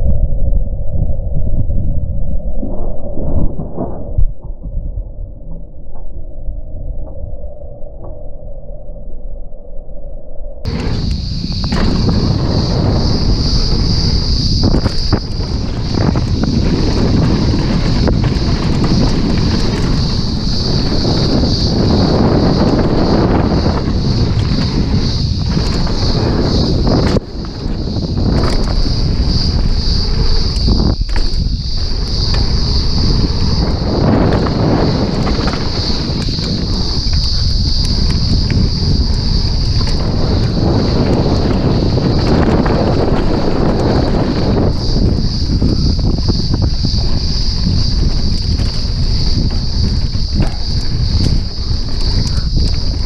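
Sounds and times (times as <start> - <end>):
wind buffeting microphone: 0.0 - 8.6, 10.6 - 53.0
steady high whine: 0.0 - 53.0
bike knocking and rattling: 10.7 - 53.0
tyres rumbling over dirt: 10.7 - 53.0.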